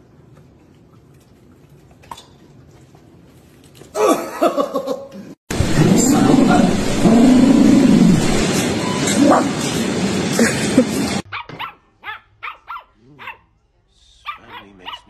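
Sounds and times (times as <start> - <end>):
loud steady noise: 5.5 - 11.2.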